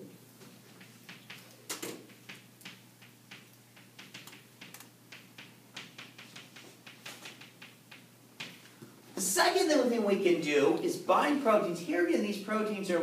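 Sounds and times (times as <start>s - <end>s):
chalk tapping on chalkboard: 2.1s - 8.6s.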